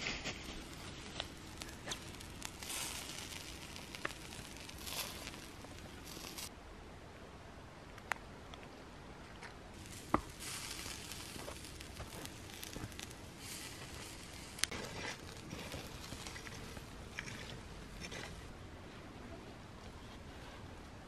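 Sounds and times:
embers crackling and hissing: 0:00.0 - 0:06.6, 0:09.7 - 0:18.6
sharp pops: 0:09.8 - 0:17.4.

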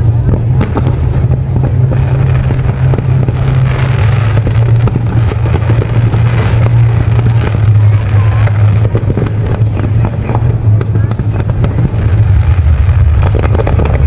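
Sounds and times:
fireworks popping and crackling: 0:00.0 - 0:14.0
low rumble: 0:00.0 - 0:14.0.

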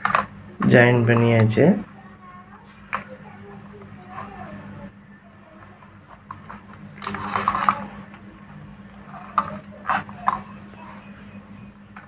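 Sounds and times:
wires scraping rustle: 0:02.6 - 0:04.9, 0:05.5 - 0:11.4.

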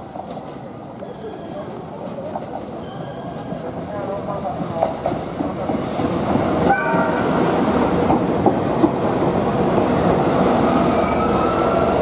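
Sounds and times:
train wheels rumbling on rails: 0:00.0 - 0:12.0
train brakes squealing: 0:00.8 - 0:03.8, 0:10.6 - 0:12.0.

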